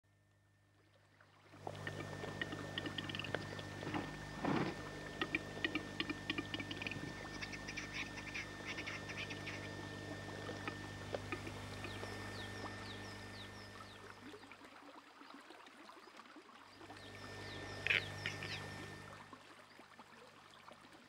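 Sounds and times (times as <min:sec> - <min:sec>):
steady low hum: 0:01.5 - 0:14.4, 0:16.8 - 0:19.4
capercaillie dry clicks: 0:01.7 - 0:07.0.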